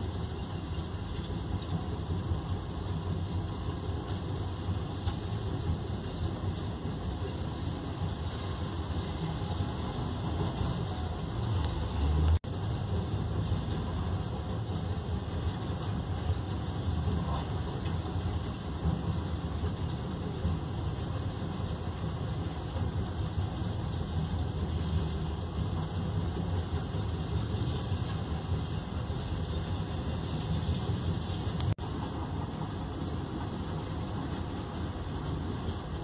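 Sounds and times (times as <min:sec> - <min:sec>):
heavy diesel engines rumbling: 0:00.0 - 0:36.0.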